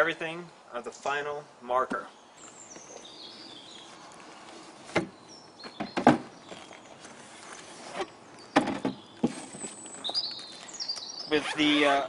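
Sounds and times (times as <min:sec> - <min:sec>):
cardboard and case knocks and scrapes: 0:05.7 - 0:06.7.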